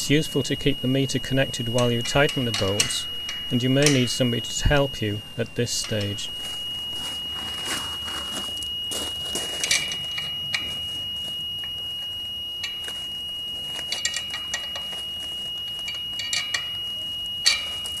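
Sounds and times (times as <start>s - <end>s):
meter whistling high tone: 0.0s - 18.0s
spanner clinking on metal: 1.5s - 4.4s, 9.6s - 10.7s, 13.8s - 15.0s, 15.7s - 18.0s.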